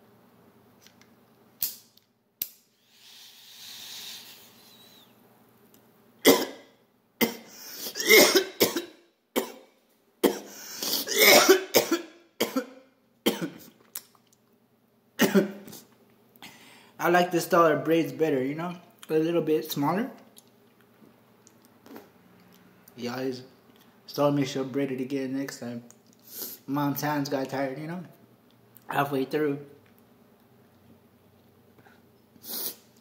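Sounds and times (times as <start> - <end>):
man coughing hard: 6.2 - 13.6, 15.2 - 15.6.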